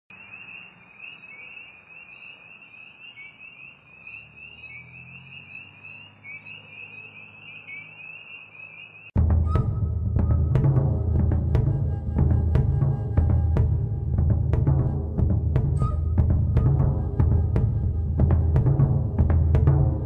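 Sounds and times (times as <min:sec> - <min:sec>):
chorus of trilling animals: 0:00.2 - 0:09.2
loud music with timpani: 0:09.2 - 0:20.0.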